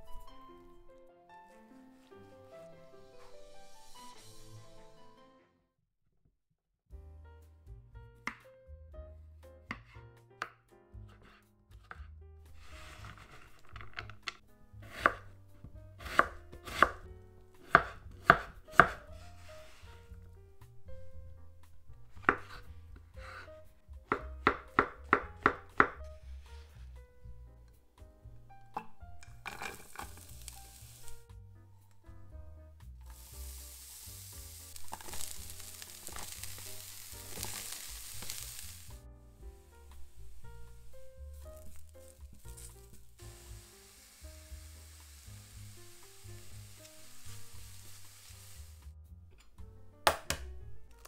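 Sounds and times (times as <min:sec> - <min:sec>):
background music: 0:00.0 - 0:05.7, 0:06.9 - 0:51.0
onions sizzling in a pan: 0:02.6 - 0:05.0, 0:12.6 - 0:13.4, 0:17.6 - 0:20.2, 0:29.4 - 0:31.3, 0:33.0 - 0:49.0
knife chopping on wooden board: 0:09.7 - 0:12.0, 0:14.8 - 0:15.3, 0:16.0 - 0:19.1, 0:22.1 - 0:22.6, 0:24.1 - 0:26.1, 0:50.0 - 0:50.5
mushrooms dropped into pan: 0:28.8 - 0:31.1, 0:34.5 - 0:38.9
vegetable pieces clicking and rustling: 0:29.3 - 0:30.8, 0:34.6 - 0:38.9, 0:41.5 - 0:43.0.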